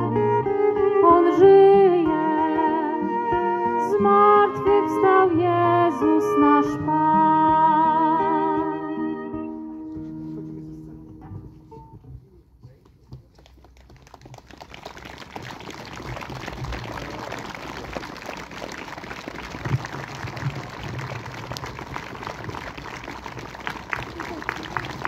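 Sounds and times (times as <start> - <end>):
large crowd applauding: 13.2 - 25.0.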